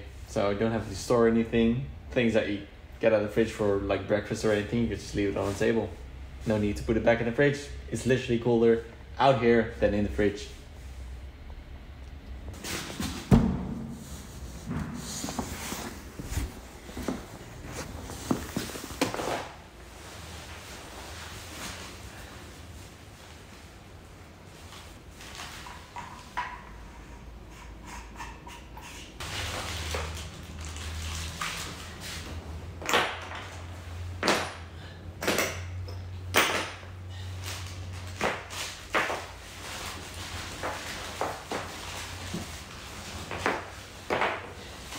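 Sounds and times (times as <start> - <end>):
steady low hum: 0.0 - 29.2
heavy thump: 13.2 - 15.1
plastic bag rustling: 29.2 - 32.3.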